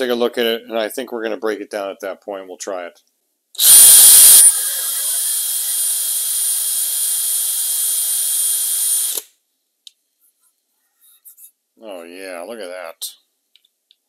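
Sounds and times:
drill high whine: 3.6s - 9.2s.

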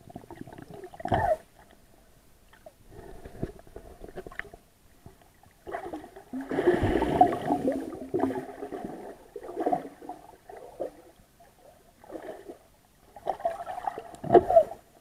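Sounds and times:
muffled water sloshing: 5.6s - 14.9s.

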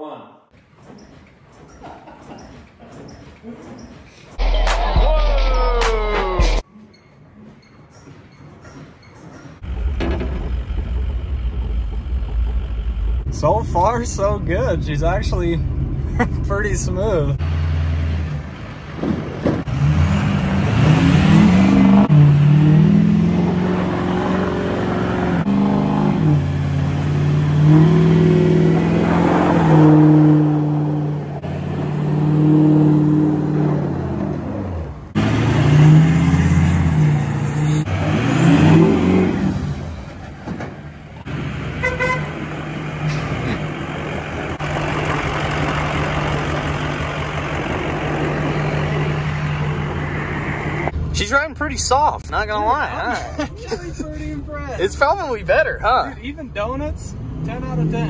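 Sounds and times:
truck engine idling: 9.6s - 16.3s, 39.9s - 51.0s
truck engine revving: 9.6s - 51.2s.

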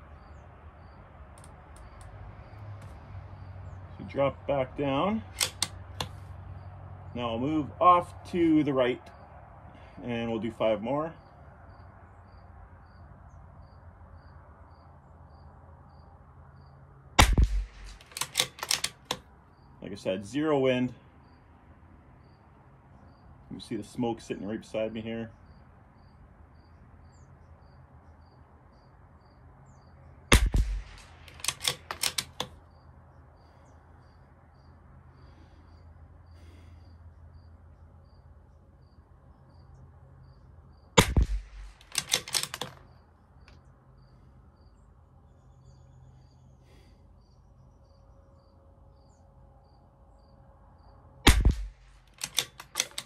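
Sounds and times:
rifle bolt metallic clicks: 5.2s - 6.2s, 17.2s - 19.3s, 30.3s - 32.6s, 41.0s - 43.6s, 51.3s - 53.0s
rifle shots: 17.2s - 19.2s, 30.3s - 32.5s, 41.0s - 42.8s, 51.3s - 53.0s.

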